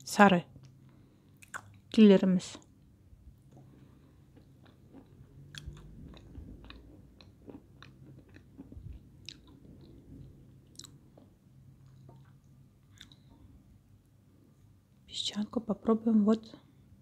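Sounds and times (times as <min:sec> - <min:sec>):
chewing dry clay crunches: 0:03.5 - 0:13.4.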